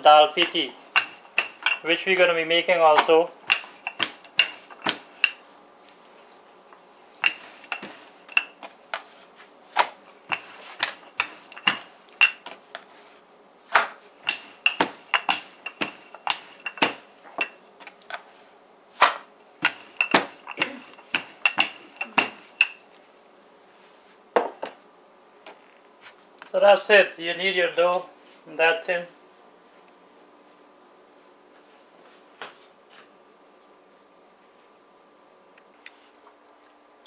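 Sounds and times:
rolling pin knocking on board: 0:03.0 - 0:05.1, 0:13.8 - 0:17.1.

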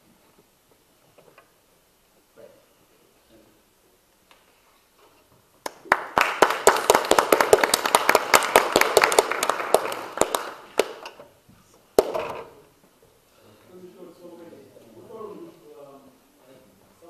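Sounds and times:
audience applauding: 0:05.6 - 0:11.2.

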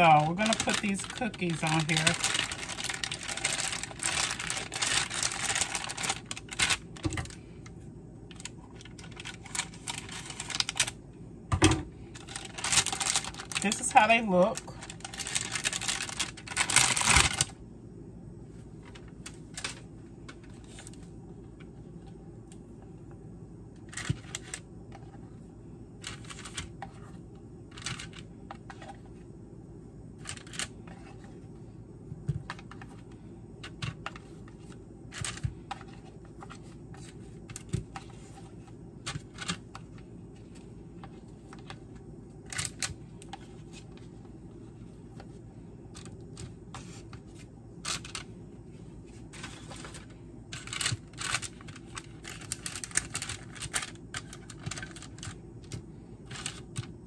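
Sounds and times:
plastic wrapper crinkling: 0:00.0 - 0:07.4, 0:08.3 - 0:11.0, 0:12.1 - 0:17.6, 0:49.4 - 0:55.4
steady low hum: 0:00.0 - 0:57.0.

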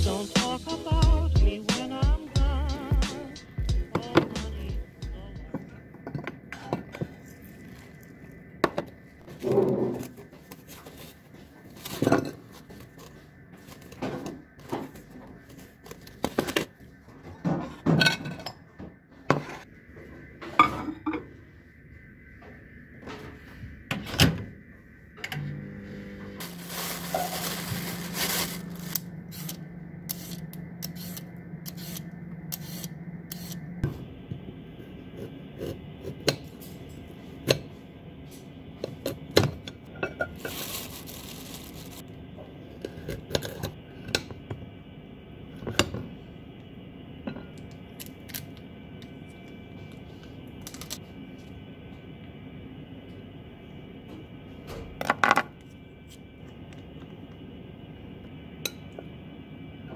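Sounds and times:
microwave oven humming: 0:00.0 - 0:10.4, 0:19.8 - 0:59.9
dishes and packaging clattering: 0:11.7 - 0:13.0, 0:26.4 - 0:28.6, 0:40.0 - 0:42.0.

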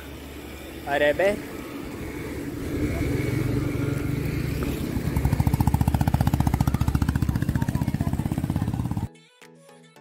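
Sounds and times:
vehicle engine rumbling past: 0:01.4 - 0:09.1.

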